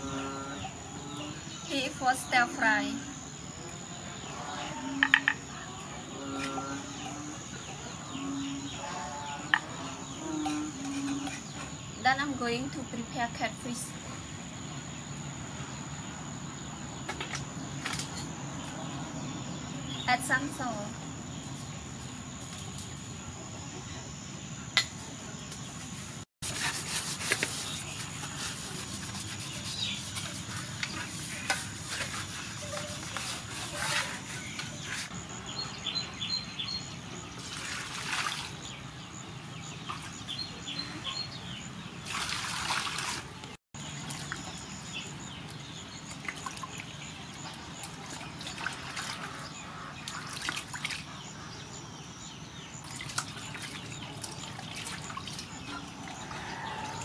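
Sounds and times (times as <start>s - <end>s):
water sloshing and splashing: 37.4s - 38.8s, 42.0s - 44.9s, 46.0s - 51.2s, 52.8s - 57.0s.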